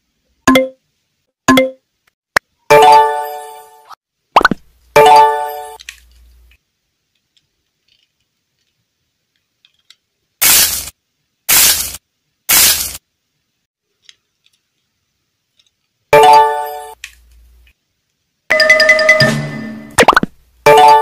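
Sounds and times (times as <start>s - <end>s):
short loud hissing bursts: 10.4s - 13.0s.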